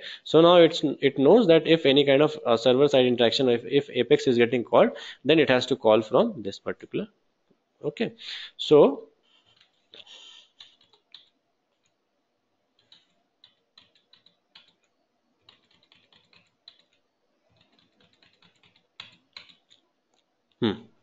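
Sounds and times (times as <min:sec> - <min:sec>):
keyboard keys tapping: 0:10.5 - 0:11.9, 0:12.8 - 0:19.8.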